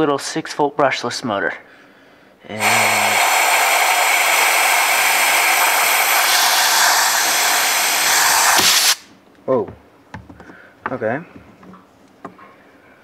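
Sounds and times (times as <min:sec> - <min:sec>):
compressed air hissing: 0:02.5 - 0:09.1.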